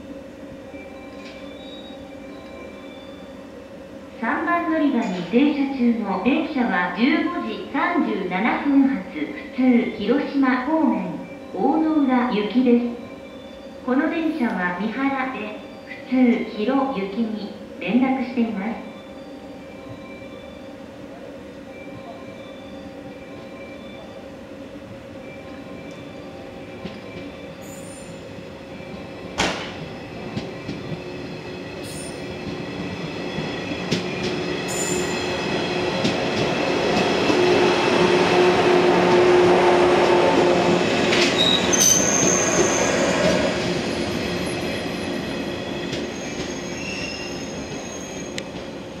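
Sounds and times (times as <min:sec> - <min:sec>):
wheel and brake squeals: 0:01.3 - 0:02.0, 0:41.1 - 0:43.5, 0:45.0 - 0:48.4
train wheels rumbling on rail: 0:24.7 - 0:49.0.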